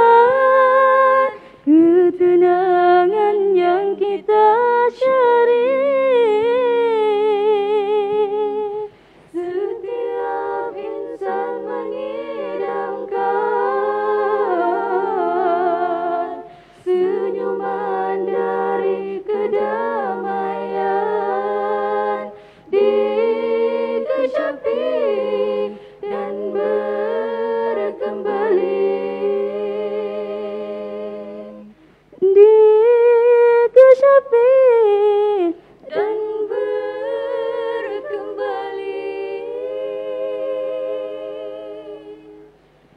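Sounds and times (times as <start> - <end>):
women singing a cappella: 0.0 - 42.9.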